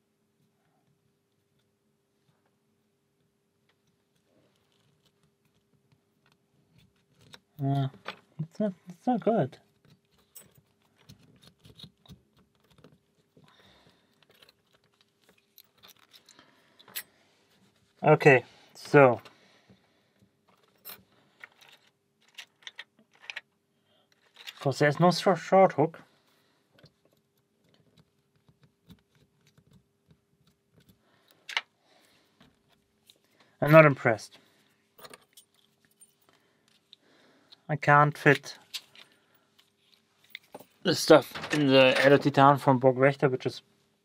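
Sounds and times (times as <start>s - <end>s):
lock picks clicking and scraping: 3.7s - 8.2s, 9.6s - 17.7s, 20.2s - 24.8s, 26.7s - 31.7s, 35.0s - 42.2s.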